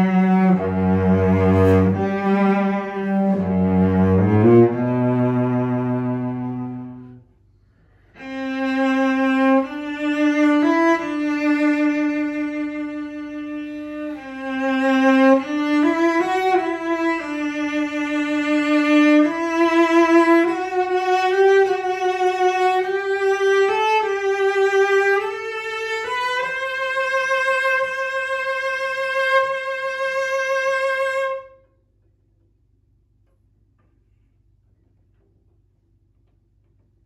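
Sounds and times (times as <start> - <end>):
bowed cello melody: 0.0 - 31.7.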